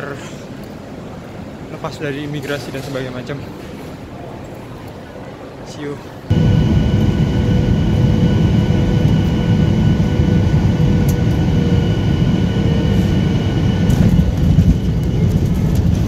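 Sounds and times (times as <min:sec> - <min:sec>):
jet engines whining: 0:06.2 - 0:16.0
low rumble of rolling plane: 0:06.3 - 0:16.0.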